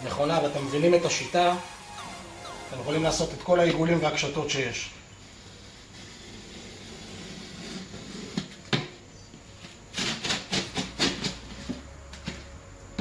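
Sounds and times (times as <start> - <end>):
utility knife scraping board: 5.2 - 8.7, 9.9 - 12.5.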